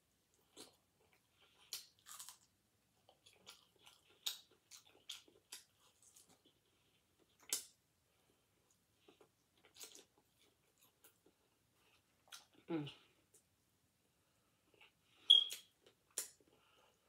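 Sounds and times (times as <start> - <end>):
person chewing crisp food: 0.2 - 13.5.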